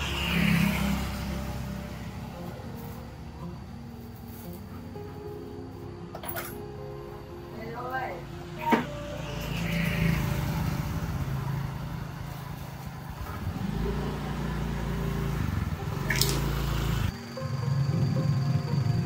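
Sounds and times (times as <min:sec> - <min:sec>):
scooter engine running: 0:09.1 - 0:19.0.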